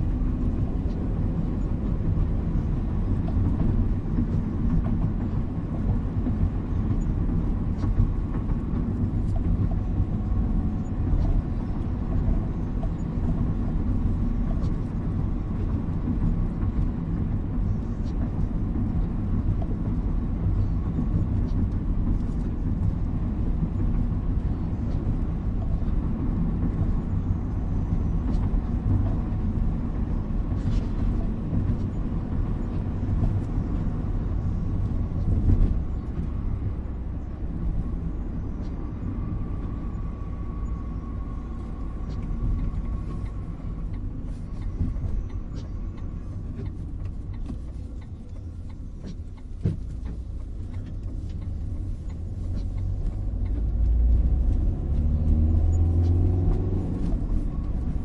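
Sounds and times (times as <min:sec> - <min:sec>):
car road noise on wet pavement: 0:00.0 - 0:58.0
light ticks: 0:41.5 - 0:58.0.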